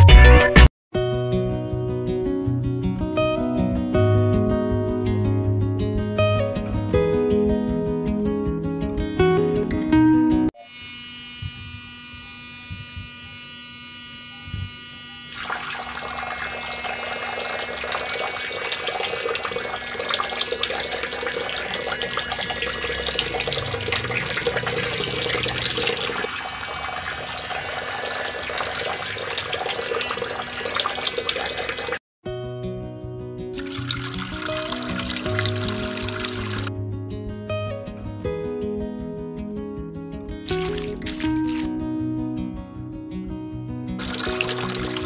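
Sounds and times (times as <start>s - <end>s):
small motor whining: 10.6s - 32.0s
water splashing into basin: 15.4s - 32.0s, 33.6s - 36.7s, 40.5s - 41.7s, 44.0s - 45.0s.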